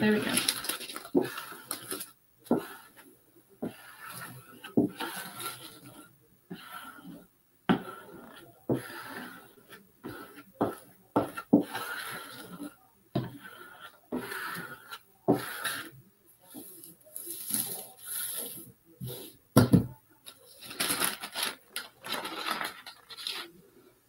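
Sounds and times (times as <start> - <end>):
squeegee scraping on glass: 3.6 - 19.4.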